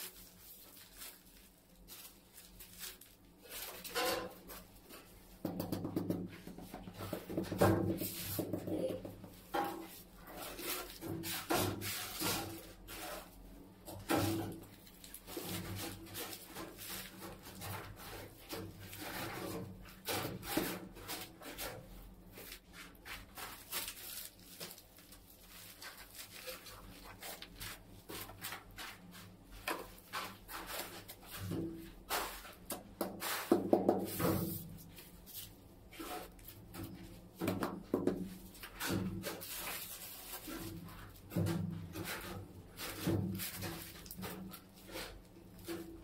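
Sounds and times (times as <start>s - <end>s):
hands rubbing tile on wall: 25.7s - 46.0s.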